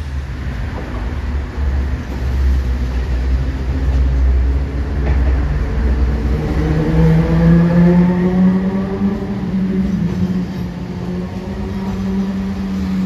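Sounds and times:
vehicle engine accelerating: 4.5 - 13.0.

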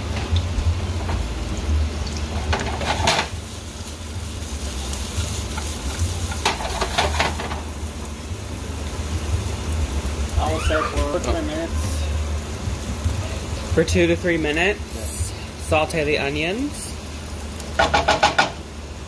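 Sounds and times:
onions sizzling in oil: 0.0 - 19.0
pan clattering on stove grate: 2.3 - 3.4, 5.5 - 7.7, 17.8 - 18.6
steady low rumble: 11.0 - 17.6.

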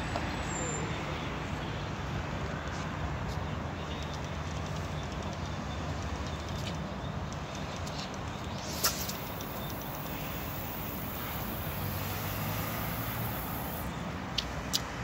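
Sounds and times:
road traffic: 0.0 - 15.0
wind: 0.0 - 15.0
faint high hiss: 8.7 - 13.9.

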